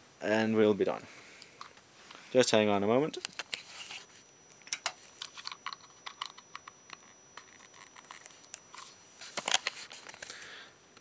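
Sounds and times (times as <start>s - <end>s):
clicks and rustles of handling: 4.6s - 10.4s.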